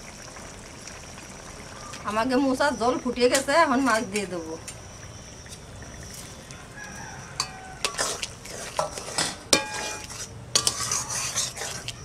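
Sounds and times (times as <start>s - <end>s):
prawns sliding into curry: 6.9s - 12.0s
spatula stirring and knocking on pot: 7.4s - 12.0s.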